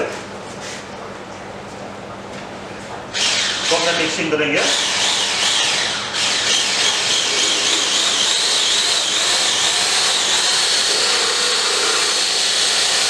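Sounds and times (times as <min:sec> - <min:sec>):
stick blender whirring: 0:03.1 - 0:13.0.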